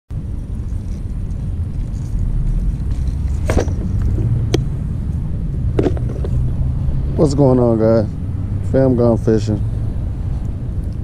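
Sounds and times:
loud low rumble: 0:00.1 - 0:08.8.

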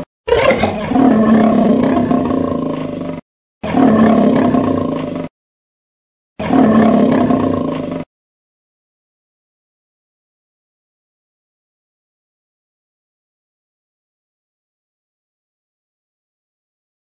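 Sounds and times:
lion roaring: 0:00.3 - 0:05.3, 0:06.4 - 0:08.1.

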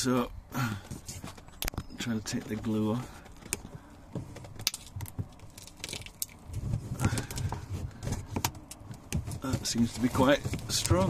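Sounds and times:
handling noise: 0:00.8 - 0:11.0
glue crackling: 0:01.0 - 0:11.0.

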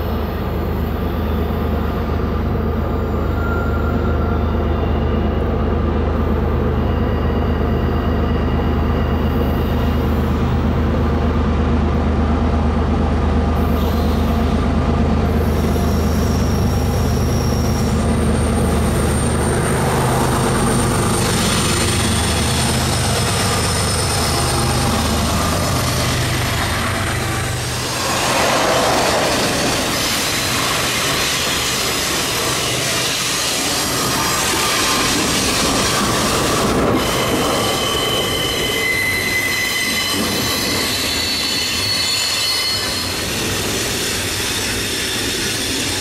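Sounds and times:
diesel locomotive engines droning: 0:00.0 - 0:46.0
steel wheel squeal: 0:03.2 - 0:05.3, 0:15.4 - 0:46.0
wheel on rail hiss: 0:15.3 - 0:39.3.

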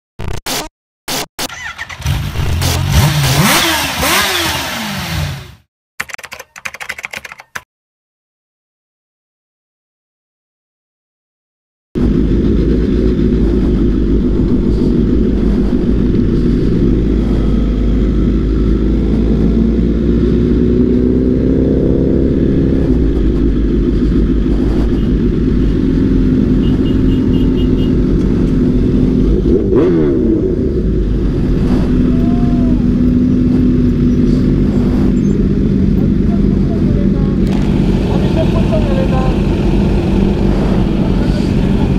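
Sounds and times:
motorcycle engine running: 0:12.0 - 0:41.9.

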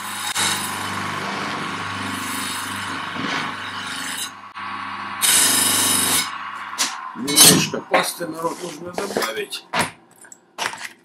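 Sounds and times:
bench grinder motor hum: 0:00.0 - 0:06.7.

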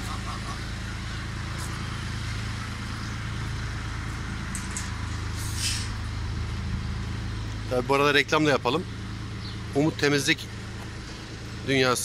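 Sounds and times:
engine humming: 0:00.0 - 0:12.0
brief hiss: 0:05.4 - 0:06.0.

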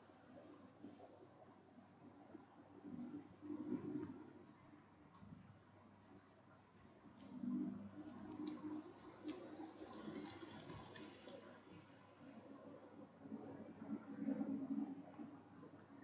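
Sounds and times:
keyboard typing: 0:05.2 - 0:11.5.

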